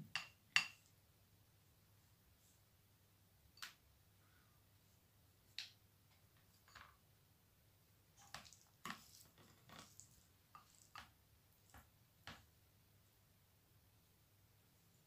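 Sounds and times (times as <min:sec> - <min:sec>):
soft squishes: 0:08.1 - 0:11.8.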